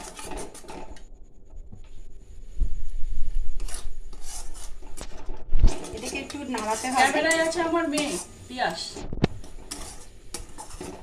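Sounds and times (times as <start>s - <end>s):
metal spatula scraping pan: 0.0s - 1.0s, 3.6s - 11.0s.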